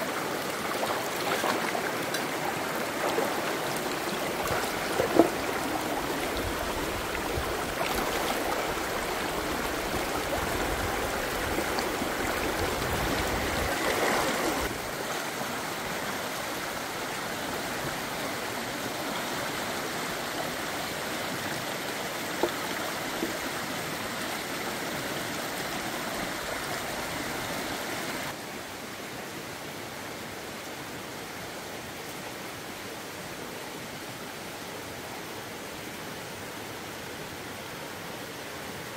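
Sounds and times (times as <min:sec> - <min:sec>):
running water rushing: 0:00.0 - 0:28.4.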